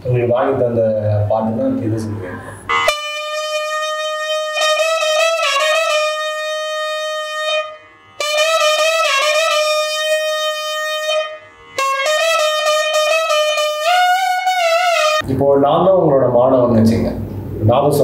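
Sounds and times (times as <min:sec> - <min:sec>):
double-reed pipe melody: 0:02.7 - 0:15.2.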